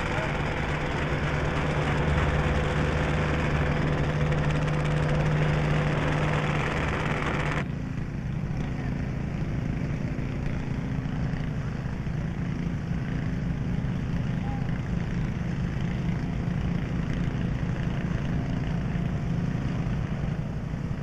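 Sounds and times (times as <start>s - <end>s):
dull low engine sound: 0.0s - 21.0s
engine humming: 0.0s - 21.0s.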